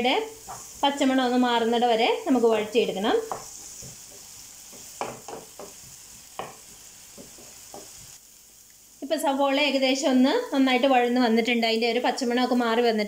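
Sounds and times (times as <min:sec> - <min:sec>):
onions sizzling in oil: 0:00.0 - 0:13.0
spatula scraping pan: 0:00.3 - 0:01.2.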